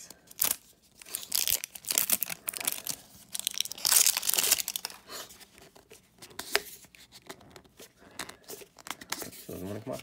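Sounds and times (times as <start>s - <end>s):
plastic wrap crinkling and tearing: 0.3s - 5.2s.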